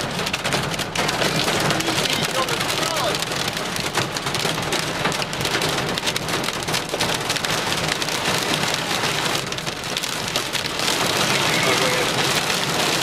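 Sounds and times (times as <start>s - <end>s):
hail and rain on vehicle roof: 0.0s - 13.0s.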